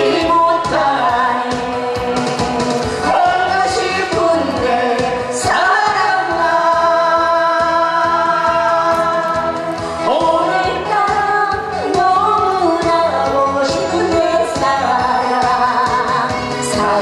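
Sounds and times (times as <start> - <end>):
man singing: 0.0 - 11.0
instrumental accompaniment with beat: 0.0 - 17.0
woman singing: 0.0 - 17.0.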